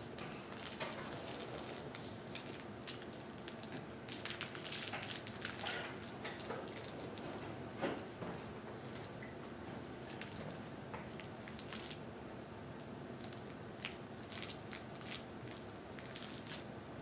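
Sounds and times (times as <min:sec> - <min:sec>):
steady low hiss: 0:00.0 - 0:06.3
soft toys crinkling and clicking: 0:00.1 - 0:07.5, 0:10.0 - 0:12.0, 0:13.2 - 0:16.7.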